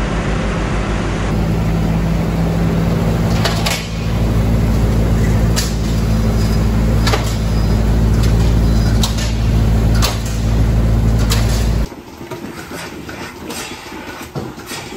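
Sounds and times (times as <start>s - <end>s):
engine humming: 0.0s - 11.9s.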